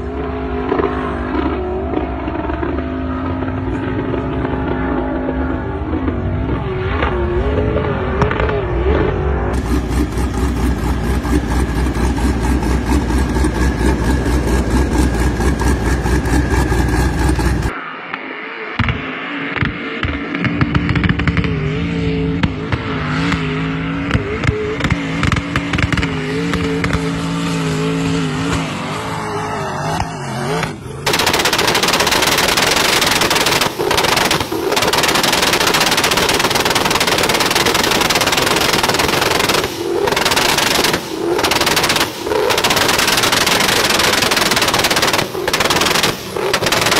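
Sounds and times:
truck engines at full throttle: 0.0 - 18.2, 18.8 - 46.9
harsh exhaust rattle: 9.5 - 17.7, 31.0 - 46.9.

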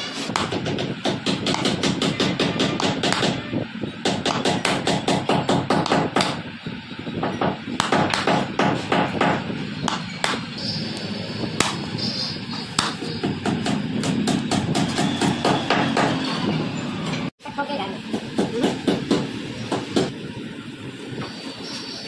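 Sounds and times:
chisel hammered into wood: 0.3 - 3.4, 4.0 - 6.4, 7.3 - 10.4, 12.8 - 16.2.

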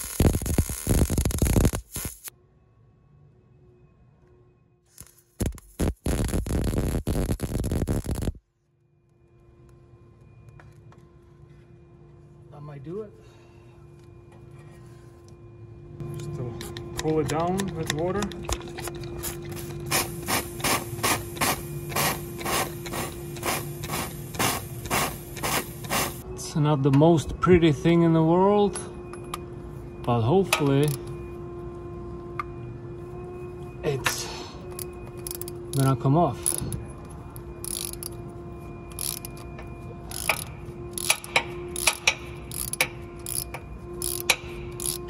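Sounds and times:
ratchet wrench clicking: 34.8 - 35.8, 36.4 - 36.7, 37.6 - 38.2, 38.9 - 39.4, 40.1 - 45.0.

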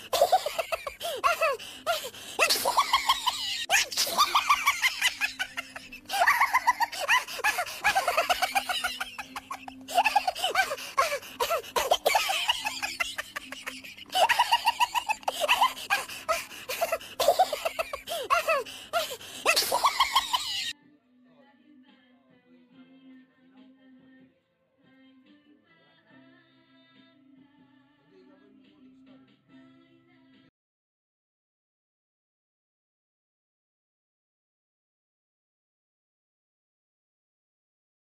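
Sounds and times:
high-pitched laughter: 0.0 - 20.8.

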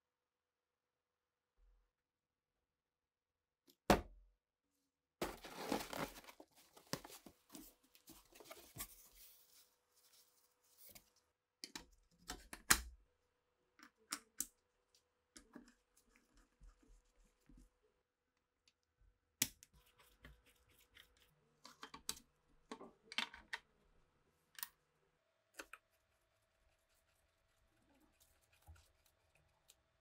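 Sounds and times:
box flaps rustling: 5.2 - 7.3.

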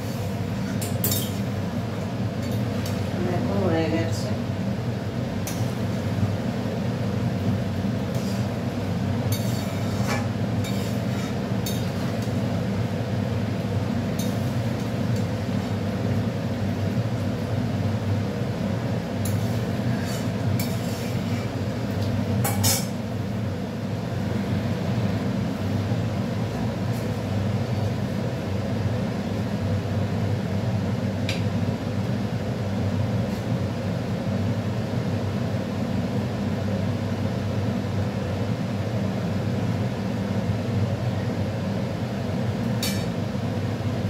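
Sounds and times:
metal ladle scraping a pot: 9.3 - 12.2, 19.3 - 21.5.

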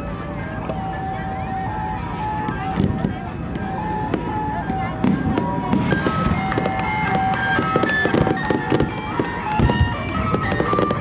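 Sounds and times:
fireworks popping and banging: 2.0 - 11.0.

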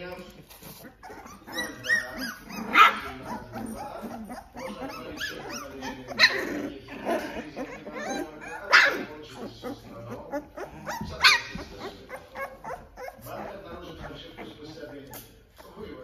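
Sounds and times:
puppies yipping and whining: 0.4 - 15.8
puppy yelps: 1.0 - 6.5, 7.6 - 13.3.

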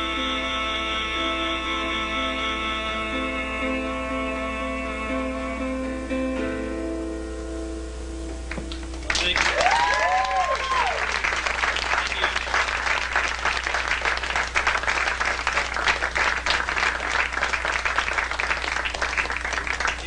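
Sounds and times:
audience clapping: 8.5 - 20.0
audience cheer: 9.1 - 14.8.

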